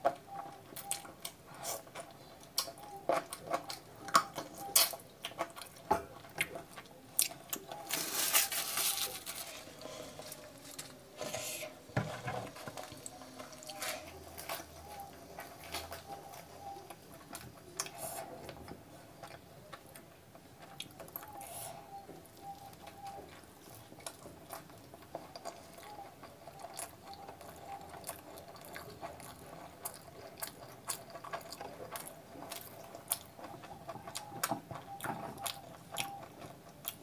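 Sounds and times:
crisp bread crackling as torn: 7.3s - 10.9s
wet chewing: 12.9s - 37.0s.

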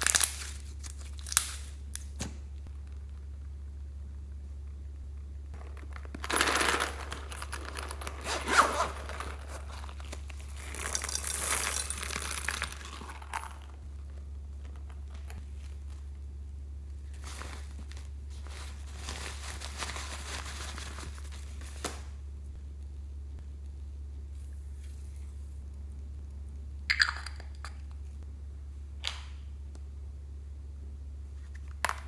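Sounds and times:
plastic rustling and crinkling: 0.0s - 3.1s, 5.6s - 16.2s, 17.0s - 22.1s
steady low hum: 0.0s - 32.0s.

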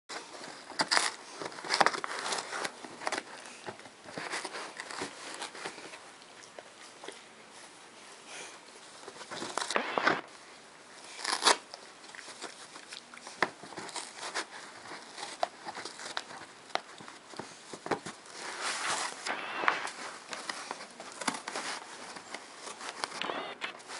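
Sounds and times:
dog chewing and tearing cardboard: 0.1s - 7.2s, 11.1s - 19.2s.

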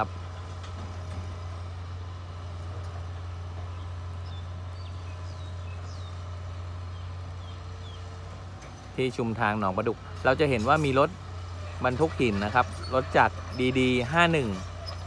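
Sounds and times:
heavy diesel machinery droning: 0.0s - 15.0s.

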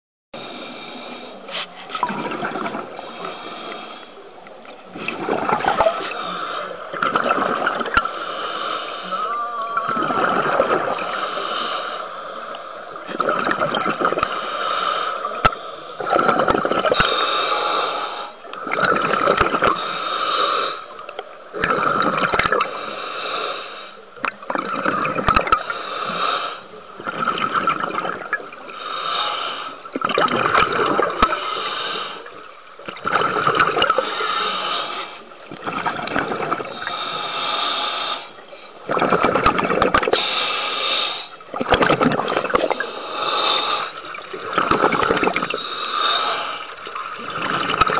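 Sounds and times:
diver breathing through regulator: 0.4s - 4.2s, 5.1s - 9.4s, 10.1s - 20.9s, 21.6s - 24.0s, 25.5s - 26.7s, 28.7s - 29.9s, 30.9s - 32.4s, 33.2s - 39.1s, 40.0s - 41.4s, 42.4s - 47.9s
bubbles gurgling: 2.0s - 3.4s, 4.9s - 6.3s, 6.9s - 8.1s, 9.1s - 11.8s, 12.9s - 14.4s, 15.4s - 17.0s, 18.6s - 19.8s, 21.5s - 22.8s, 24.2s - 25.8s, 27.0s - 28.8s, 29.9s - 31.5s, 32.8s - 34.3s, 35.4s - 37.1s, 38.8s - 40.3s, 41.4s - 47.9s.

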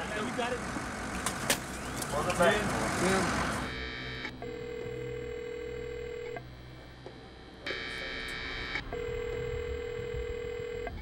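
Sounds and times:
higher buzzing tone: 3.2s - 11.0s
steady low phone tone: 3.6s - 11.0s.

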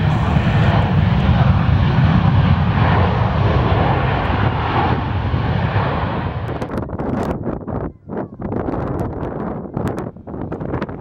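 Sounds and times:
jet engines rumbling: 0.0s - 7.3s.

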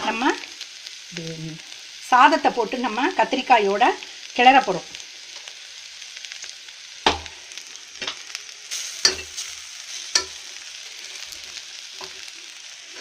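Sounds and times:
food sizzling in a pan: 0.0s - 13.0s
sharp knocks on a pan: 7.0s - 7.4s, 8.0s - 8.2s.

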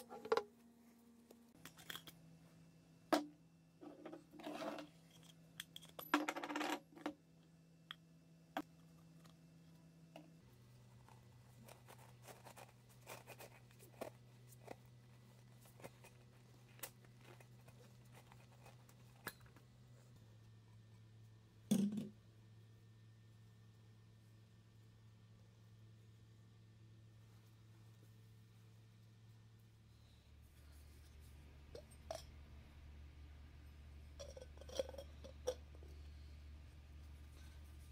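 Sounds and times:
metal oil filter clinks and scrapes: 31.7s - 32.4s, 34.1s - 35.8s.

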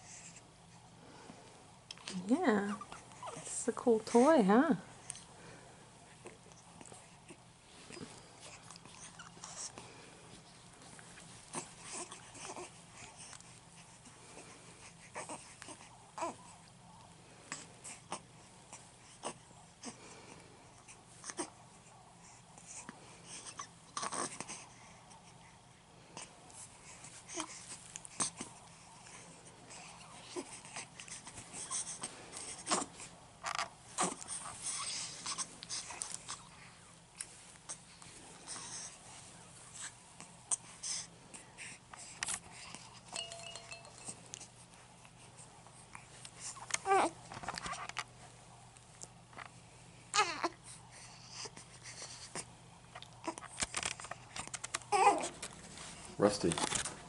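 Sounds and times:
babies wheezy breaths: 17.4s - 25.5s, 26.2s - 33.1s, 33.9s - 36.8s, 50.1s - 52.5s
faint steady tone: 43.1s - 45.1s.

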